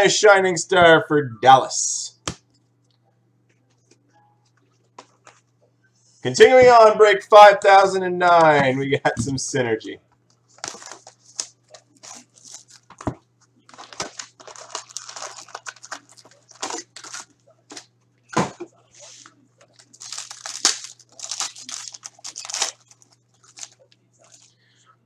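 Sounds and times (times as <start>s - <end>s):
card wrappers ripping and crinkling: 10.5s - 13.0s, 13.7s - 17.9s, 19.6s - 24.5s.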